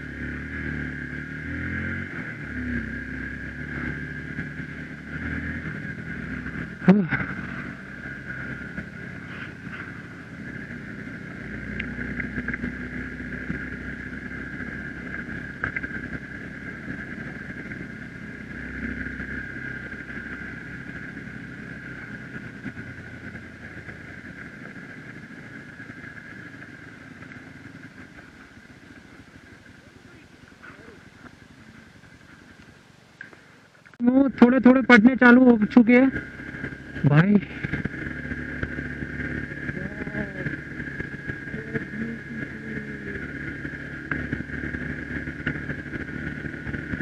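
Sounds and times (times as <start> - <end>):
high whine: 0.0 - 47.0
motorcycle engine running: 0.0 - 47.0.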